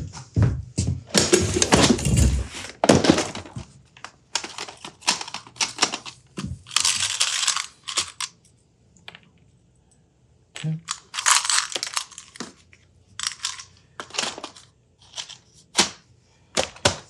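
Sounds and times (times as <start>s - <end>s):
plastic box knocking and clattering: 1.0s - 3.8s, 16.6s - 17.0s
hands rummaging through plastic bins: 1.0s - 8.3s, 10.6s - 17.0s
small terminals clicking and rattling: 4.3s - 9.5s, 10.6s - 15.5s.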